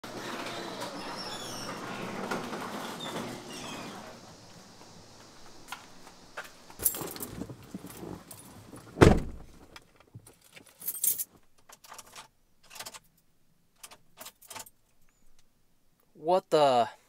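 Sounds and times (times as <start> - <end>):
truck door opening: 0.2 - 9.7
heavy door slam: 9.0 - 9.5.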